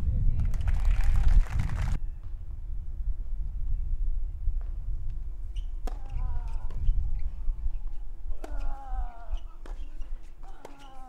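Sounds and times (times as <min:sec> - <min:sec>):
tennis ball struck by rackets: 0:05.6 - 0:07.0, 0:08.3 - 0:11.0.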